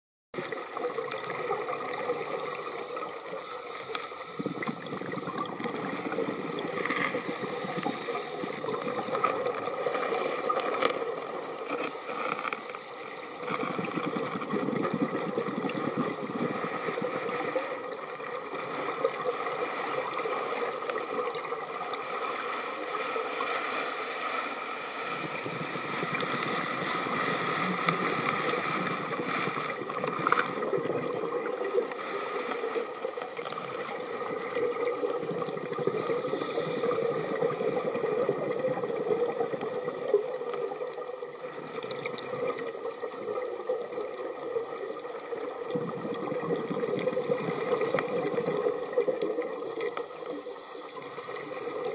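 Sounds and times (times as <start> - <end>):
underwater bubbles rushing: 0.4 - 22.9, 25.0 - 51.9
regulator inhalation hiss: 2.2 - 6.2, 11.0 - 13.0, 16.1 - 17.7, 18.5 - 30.3, 31.8 - 37.9, 42.1 - 44.4, 50.4 - 51.9.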